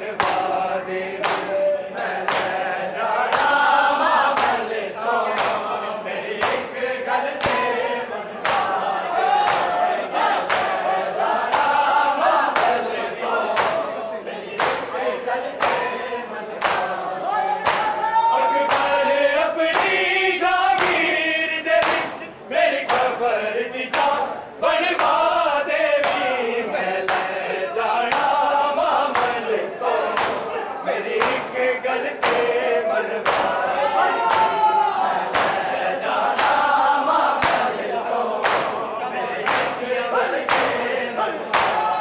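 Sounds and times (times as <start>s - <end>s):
men chanting in unison: 0.0s - 42.0s
hands slapping chests: 0.2s - 0.6s, 1.2s - 1.6s, 2.2s - 2.6s, 3.3s - 5.8s, 6.4s - 6.7s, 7.4s - 7.7s, 8.4s - 8.8s, 9.4s - 9.8s, 10.4s - 10.8s, 11.4s - 12.9s, 13.5s - 13.9s, 14.6s - 14.9s, 15.6s - 15.9s, 16.6s - 17.0s, 17.6s - 18.0s, 18.6s - 19.0s, 19.7s - 20.0s, 20.7s - 21.1s, 21.8s - 22.2s, 22.8s - 23.2s, 23.9s - 24.2s, 25.0s - 25.3s, 26.0s - 26.4s, 27.1s - 27.4s, 28.1s - 28.4s, 29.1s - 29.4s, 30.0s - 30.5s, 31.1s - 32.6s, 33.2s - 34.6s, 35.2s - 37.8s, 38.4s - 38.8s, 39.4s - 39.8s, 40.4s - 40.8s, 41.4s - 42.0s.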